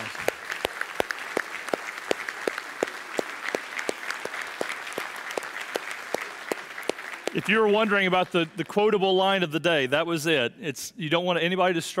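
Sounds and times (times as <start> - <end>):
loud claps close by: 0.0 - 8.8
audience applauding: 0.0 - 8.9.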